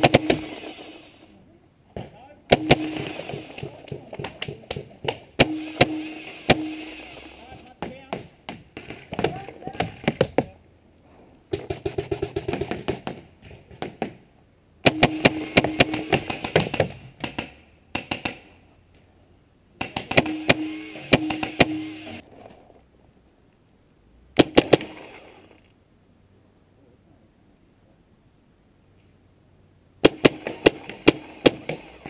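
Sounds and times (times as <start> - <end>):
steady low hum: 0.0 - 8.8, 14.2 - 32.0
paintball marker rapid firing: 30.1 - 32.0.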